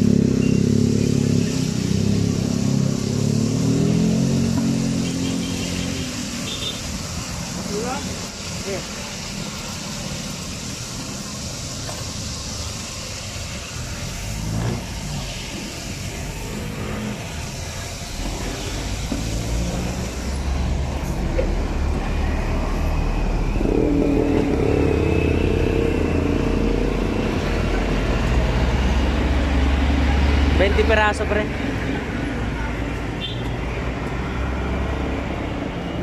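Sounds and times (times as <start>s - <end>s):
oil sizzling in deep-fryer: 0.0s - 23.1s.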